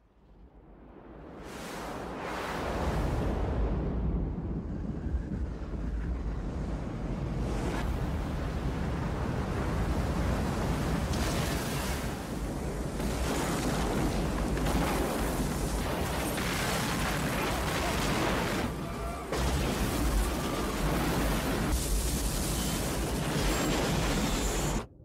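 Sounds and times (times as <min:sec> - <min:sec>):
rushing crashing water rumble: 0:07.8 - 0:24.8.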